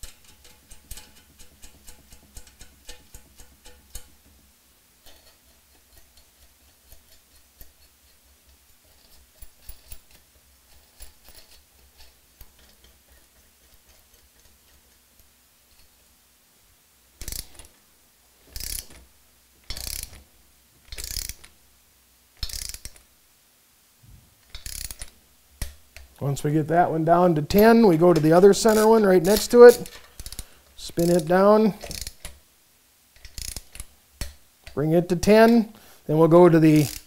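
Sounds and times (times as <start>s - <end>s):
ratchet wrench ratcheting: 0.0s - 4.4s, 17.2s - 17.7s, 18.5s - 19.0s, 19.7s - 20.2s, 20.9s - 21.5s, 22.4s - 23.0s, 24.4s - 26.1s, 27.5s - 32.4s, 33.2s - 35.6s, 36.6s - 37.0s.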